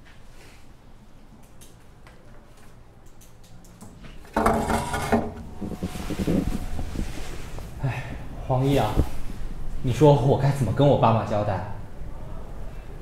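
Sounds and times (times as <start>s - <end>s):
metal chair scraping across floor: 4.4s - 8.1s.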